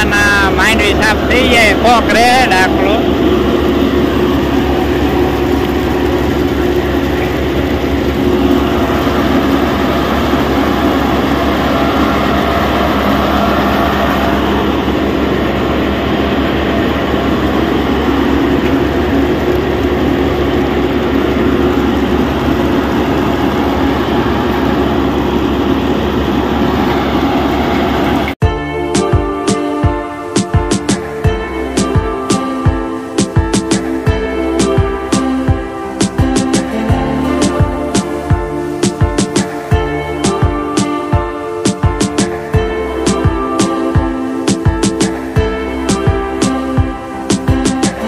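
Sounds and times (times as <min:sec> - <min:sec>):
thresher machine humming and rattling: 0:00.0 - 0:28.4.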